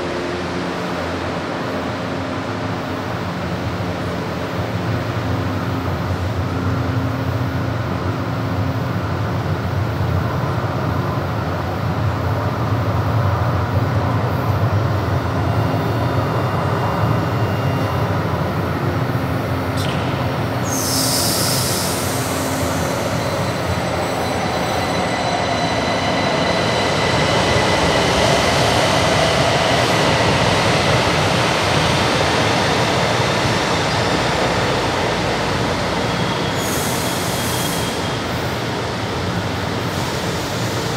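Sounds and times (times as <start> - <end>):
train humming at platform: 0.0 - 40.9
air hiss: 19.8 - 23.2, 36.6 - 38.1.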